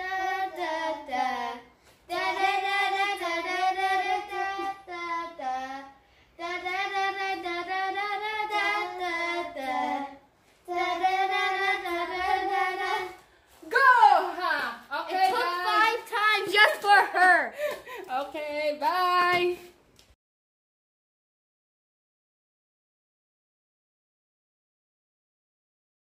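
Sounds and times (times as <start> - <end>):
girls singing in unison: 0.0 - 13.3.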